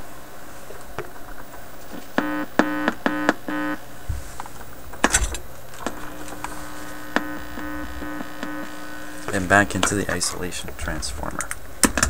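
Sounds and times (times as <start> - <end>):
record player amplifier hum: 0.0 - 12.0
buzz pulses: 1.9 - 9.9.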